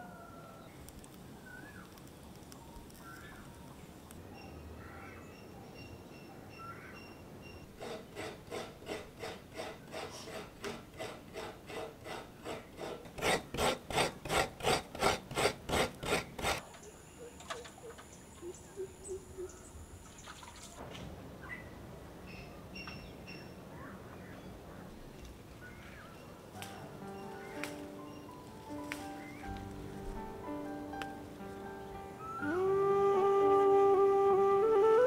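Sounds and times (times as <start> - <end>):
coconut scraping on metal blade: 7.8 - 16.6.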